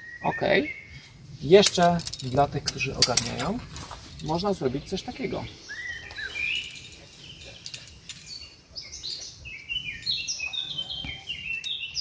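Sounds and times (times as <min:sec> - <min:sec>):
songbirds chirping: 0:00.0 - 0:12.0
metallic carabiner clicks: 0:01.6 - 0:04.5, 0:06.4 - 0:08.4.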